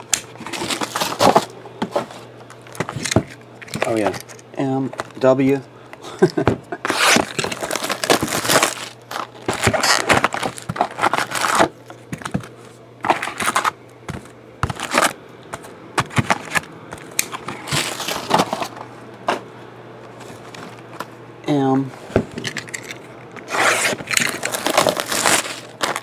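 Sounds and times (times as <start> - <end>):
plastic shrink wrap crinkling: 6.9 - 11.8, 17.6 - 18.8, 23.7 - 26.0.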